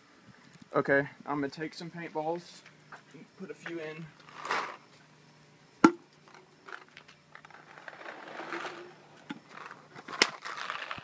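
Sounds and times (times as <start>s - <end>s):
paintballs rattling on metal mesh: 6.3s - 11.0s.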